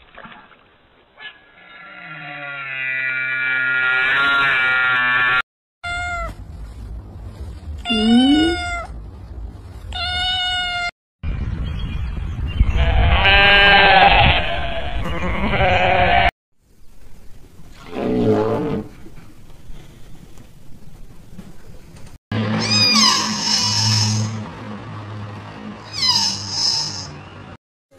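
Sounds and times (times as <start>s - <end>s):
bleat-like call: 1.8s - 5.4s, 22.6s - 24.4s, 25.9s - 27.2s
rustling: 5.9s - 10.7s.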